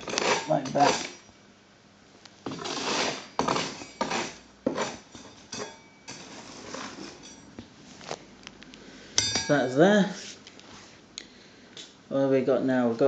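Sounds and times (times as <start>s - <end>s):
hand scraper scraping filler: 0.0s - 1.2s, 2.5s - 5.1s, 6.2s - 7.2s.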